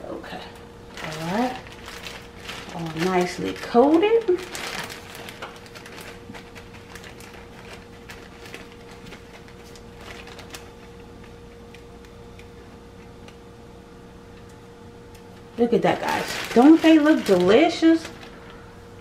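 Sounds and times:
steady hum: 0.0s - 19.0s
crumbs rustling: 0.9s - 11.5s, 15.9s - 18.7s
plastic bag crinkling: 0.9s - 11.8s, 15.6s - 18.8s.

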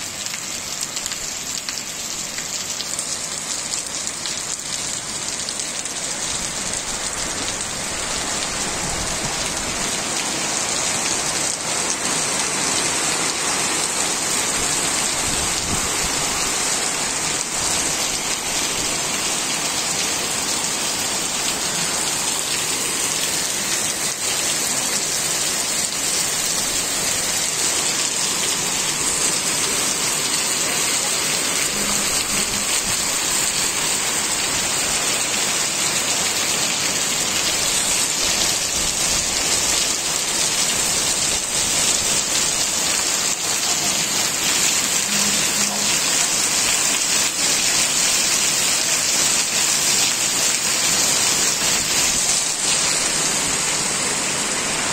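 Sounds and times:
heavy rain on pavement: 0.0s - 54.9s.

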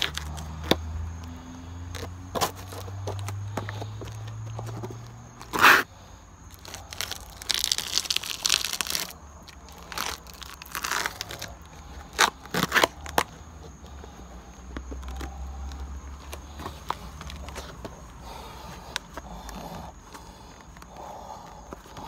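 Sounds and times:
shoes scraping on concrete: 0.1s - 5.9s, 11.8s - 22.0s.

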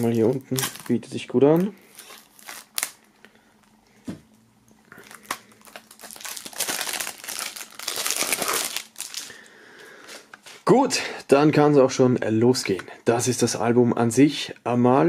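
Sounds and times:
plastic shrink-wrap crinkling: 0.0s - 3.8s, 4.9s - 9.5s.

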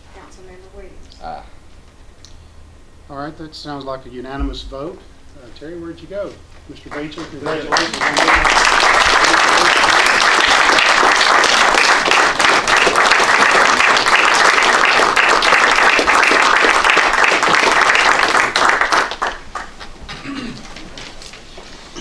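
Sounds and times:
people applauding: 6.8s - 19.9s.

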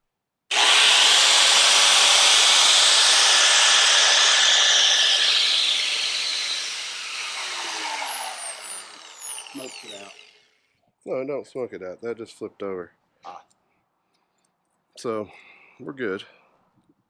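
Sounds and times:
die grinder grinding plastic: 0.5s - 10.5s.

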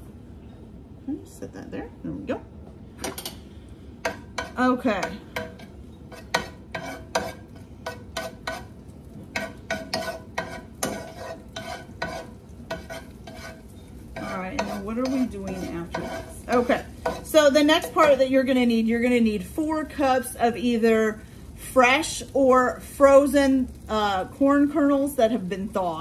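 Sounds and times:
spoon scraping skillet: 3.1s - 21.1s
oil sizzling: 3.1s - 26.0s.

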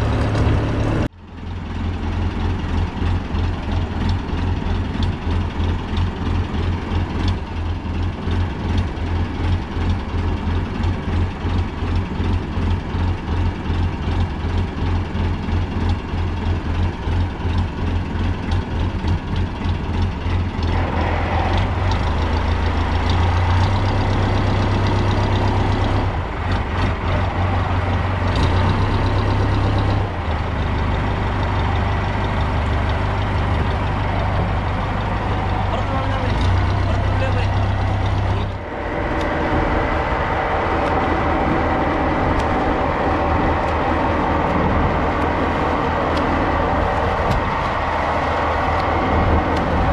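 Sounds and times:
boat engine throbbing: 0.0s - 49.9s.

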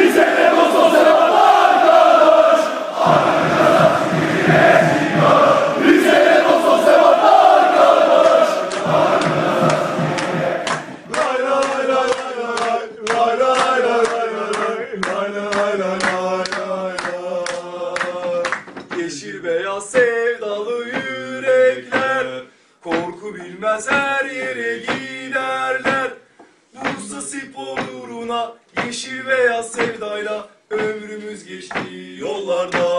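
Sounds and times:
steady beat of sharp hits: 0.0s - 11.8s
men singing a football chant: 0.0s - 26.2s, 26.8s - 32.9s.

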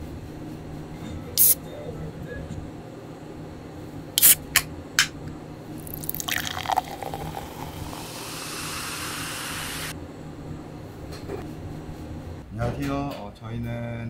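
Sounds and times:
can pull tab clicks: 4.2s - 5.1s
soda pouring and fizzing: 5.8s - 9.9s.

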